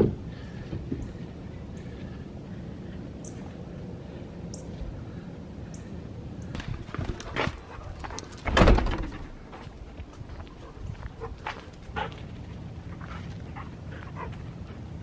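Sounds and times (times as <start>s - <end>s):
loud thump: 8.5s - 9.2s.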